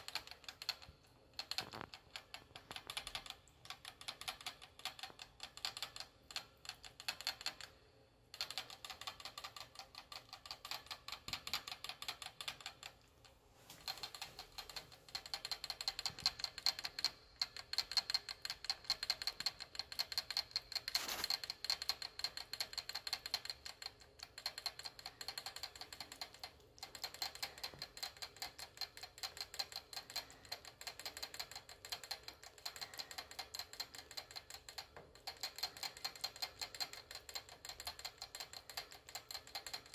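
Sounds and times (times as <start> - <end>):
rat licking metal water spout: 0.0 - 39.9.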